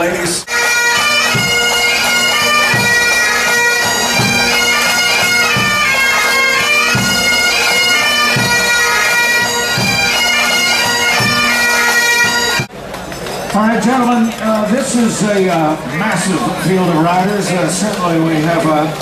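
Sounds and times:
bagpipes playing melody: 0.0s - 12.7s.

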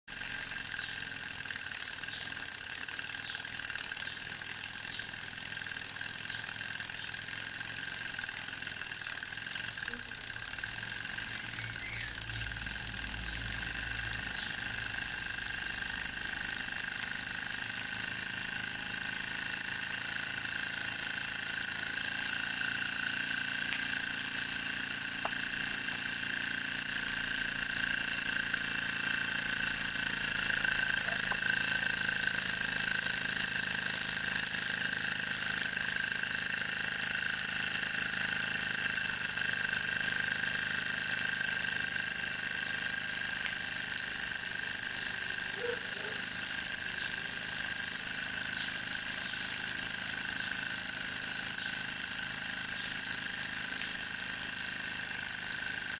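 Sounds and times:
model steam engine whirring: 0.1s - 55.9s.

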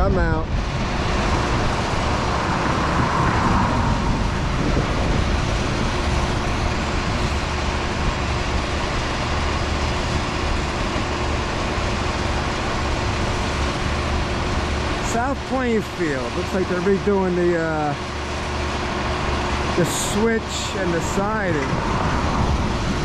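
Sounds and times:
road traffic rumble: 0.0s - 23.0s
vehicle passing close by: 0.6s - 8.2s, 21.6s - 23.0s.

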